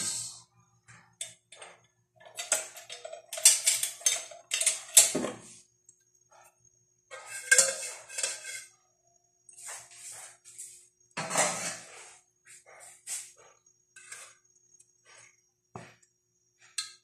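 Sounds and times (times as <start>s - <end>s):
dishes and utensils clattering: 1.0s - 5.6s, 7.1s - 8.8s, 11.2s - 12.1s, 14.0s - 14.5s.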